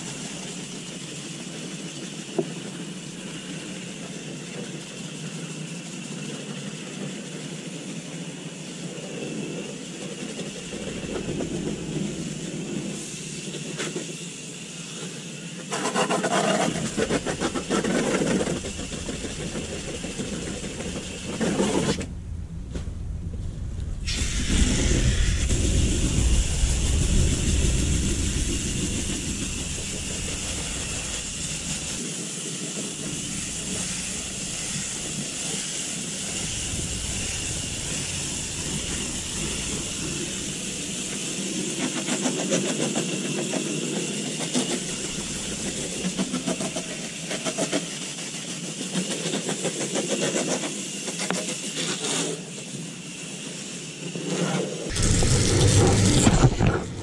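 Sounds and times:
low rumble: 18.5 - 32.0, 36.1 - 41.1, 54.9 - 57.0
hose nozzle spraying water: 24.1 - 43.0.

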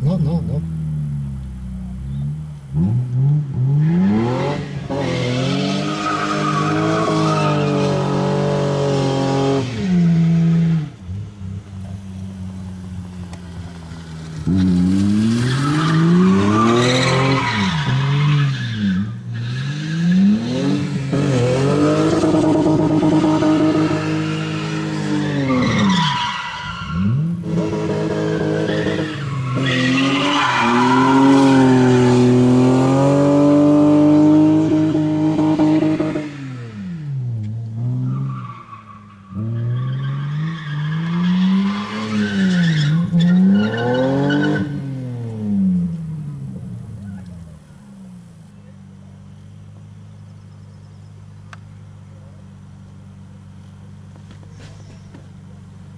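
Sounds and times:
car engine revving: 0.0 - 55.9
tyres squealing: 28.4 - 32.3.

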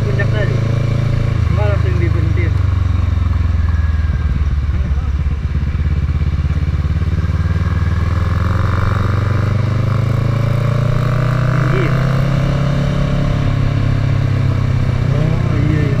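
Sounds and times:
muffled motorcycle engine: 0.0 - 16.0.

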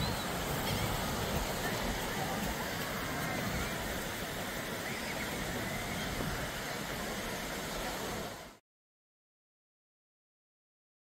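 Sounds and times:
wind rumbling on microphone: 0.0 - 8.3
faint distant voices: 0.0 - 8.6
surf wash: 0.0 - 8.6.

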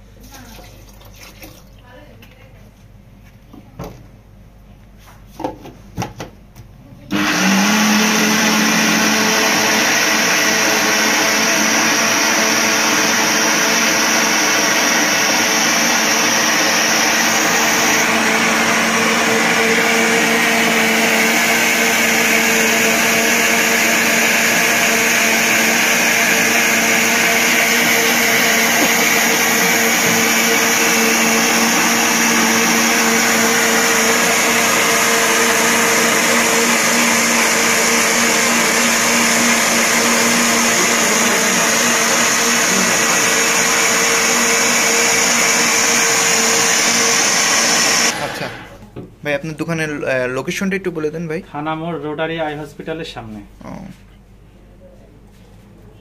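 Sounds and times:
blender running: 7.1 - 48.9
blender jar knocking: 22.8 - 48.2.

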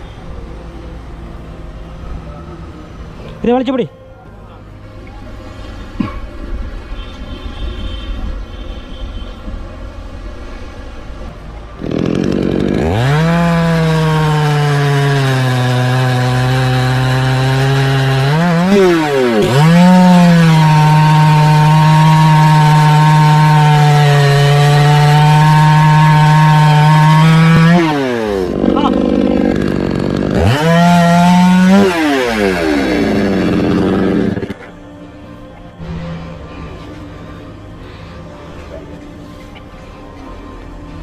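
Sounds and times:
chainsaw cutting wood: 11.8 - 34.7.

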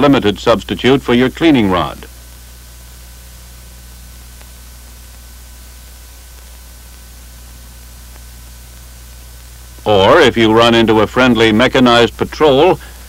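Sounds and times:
film soundtrack hiss: 0.0 - 13.0
faint clicks: 4.3 - 7.0, 8.0 - 9.9.

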